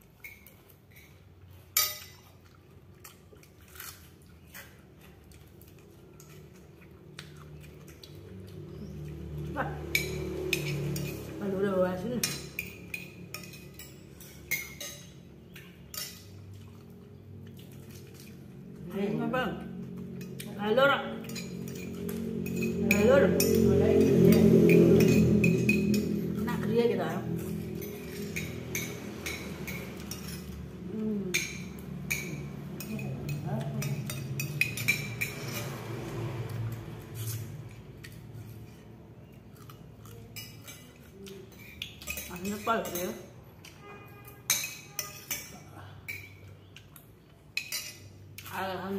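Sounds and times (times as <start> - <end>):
spoons clinking on ceramic bowls: 0.0 - 2.3, 9.9 - 11.3, 12.1 - 16.5, 21.2 - 26.4, 27.4 - 35.8, 40.3 - 46.7, 47.5 - 48.6
spoon clinking on ceramic bowl: 1.8 - 2.2, 44.4 - 46.4.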